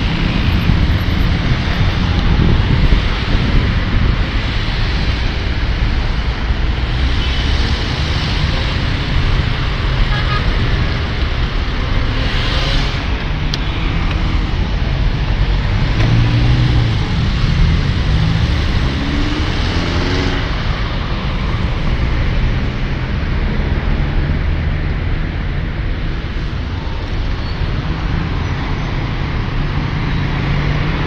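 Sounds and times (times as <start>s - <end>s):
cars idling and driving past: 0.0s - 31.0s
car engine revving: 10.6s - 25.0s.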